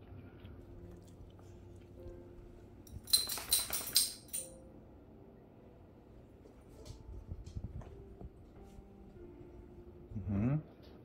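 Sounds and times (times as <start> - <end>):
metal dog collar jingling: 2.8 - 4.6.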